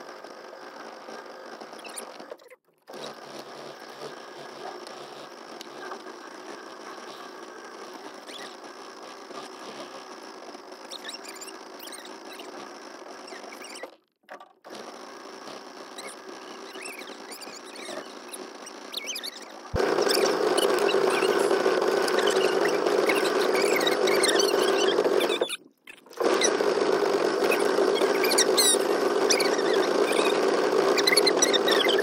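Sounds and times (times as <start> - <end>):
boat motor whining: 15.9 - 32.0.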